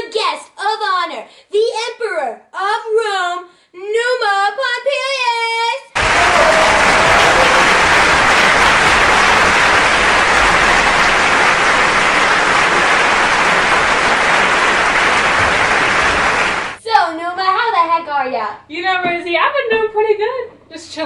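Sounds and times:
audience applause: 0:06.0 - 0:16.8.

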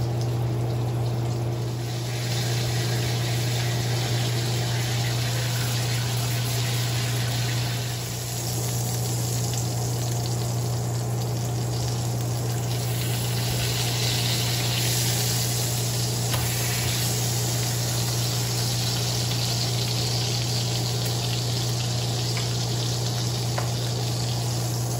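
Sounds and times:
constant low hum: 0:00.0 - 0:24.9
steak sizzling in hot oil: 0:00.4 - 0:24.9.

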